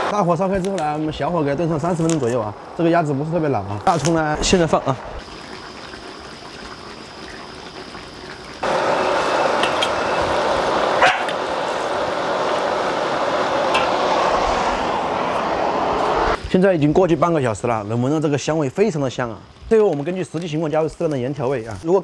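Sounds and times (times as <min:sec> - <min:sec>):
low steady hiss: 0:00.0 - 0:22.0
steady rushing noise: 0:08.6 - 0:16.5
dog bark: 0:11.0 - 0:11.4.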